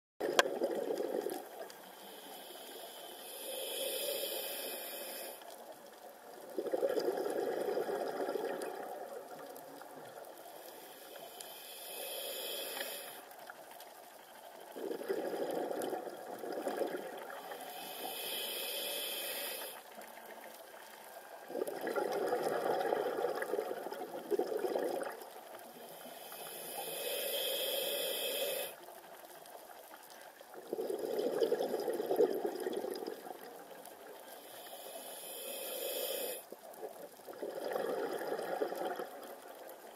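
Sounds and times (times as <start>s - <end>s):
rush of exhaled bubbles: 0.2s - 1.5s, 6.5s - 9.4s, 14.7s - 17.6s, 21.4s - 25.3s, 30.6s - 33.5s, 36.8s - 39.4s
hissing regulator inhale: 1.8s - 5.6s, 10.4s - 13.4s, 16.7s - 20.0s, 25.7s - 28.8s, 34.2s - 36.5s.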